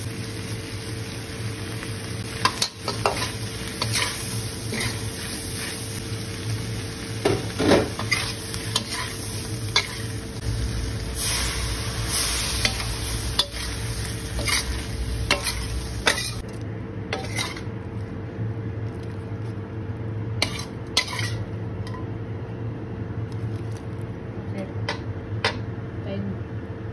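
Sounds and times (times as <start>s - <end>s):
food sizzling: 0.0s - 18.1s
metal spatula scraping a wok: 2.2s - 6.0s, 7.5s - 10.2s, 11.2s - 16.5s, 17.1s - 17.7s, 20.4s - 21.5s.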